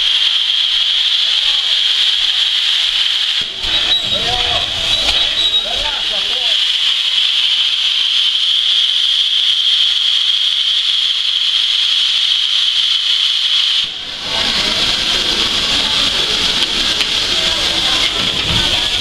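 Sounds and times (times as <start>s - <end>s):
steam locomotive hissing: 0.0s - 19.0s.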